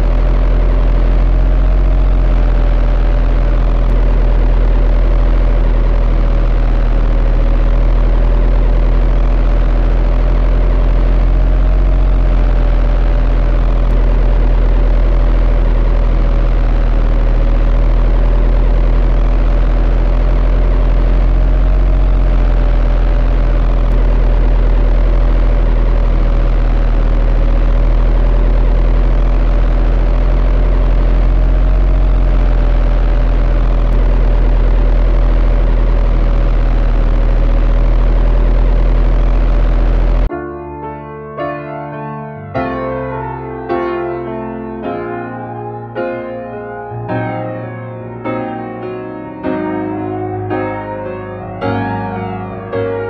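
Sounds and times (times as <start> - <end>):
motor humming with whine: 0.0 - 40.3.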